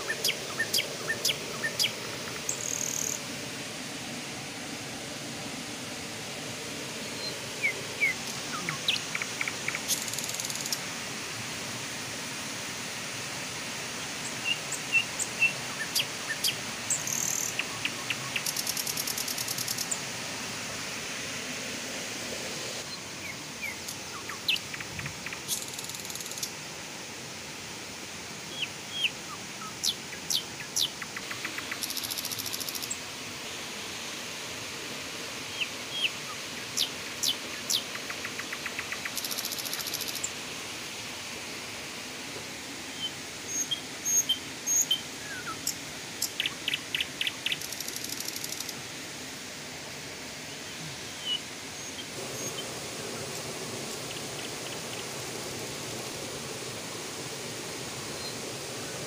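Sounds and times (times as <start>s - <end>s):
outdoor hiss: 0.0s - 59.0s
birds chirping and trilling: 7.0s - 10.8s.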